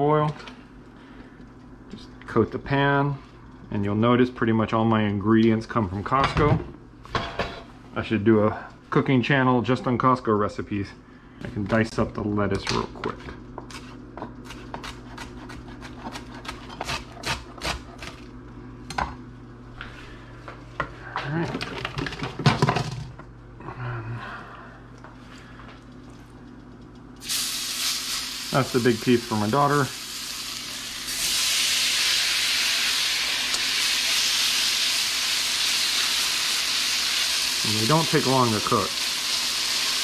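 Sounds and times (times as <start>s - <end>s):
knife chopping on cutting board: 14.5s - 18.2s
fish sizzling in frying pan: 27.2s - 40.0s.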